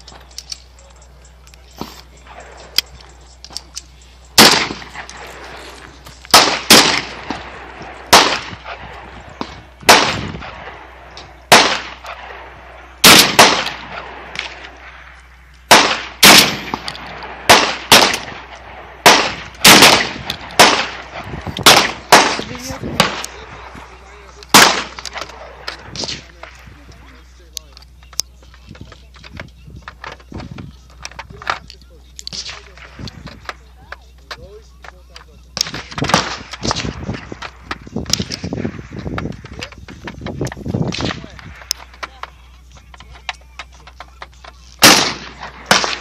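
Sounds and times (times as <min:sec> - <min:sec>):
shotgun shots echoing: 0:04.4 - 0:05.7, 0:06.3 - 0:15.1, 0:15.7 - 0:26.6, 0:35.6 - 0:38.9, 0:44.8 - 0:46.0.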